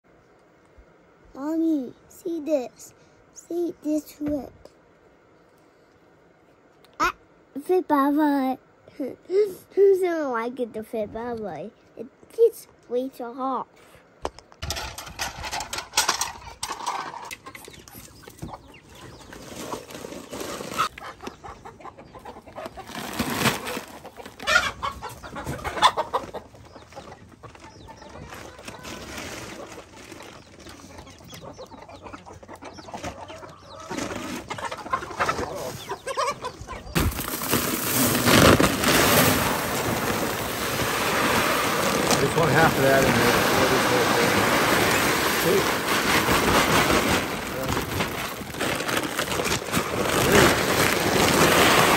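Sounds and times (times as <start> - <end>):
chickens clucking: 14.4 - 37.6, 38.2 - 51.9.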